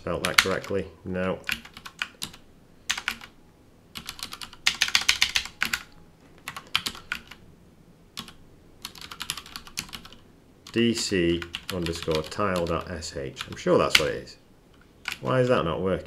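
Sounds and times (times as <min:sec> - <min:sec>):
keyboard typing clicks: 0:04.0 - 0:07.4.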